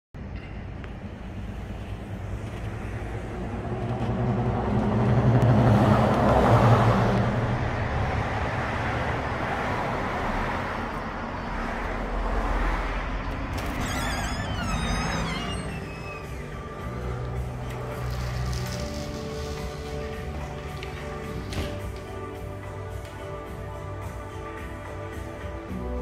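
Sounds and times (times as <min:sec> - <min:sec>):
steady traffic hum: 0:00.2 - 0:26.0
vehicle passing close by: 0:03.1 - 0:17.0.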